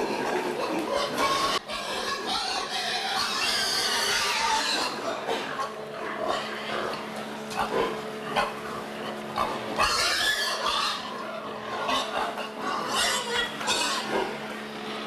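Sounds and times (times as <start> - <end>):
pigs grunting: 0.0 - 15.0.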